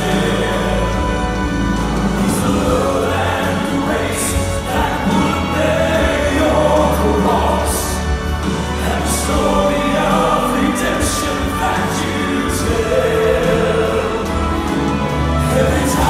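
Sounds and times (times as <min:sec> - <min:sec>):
instrumental backing: 0:00.0 - 0:16.0
men singing in harmony: 0:00.0 - 0:16.0.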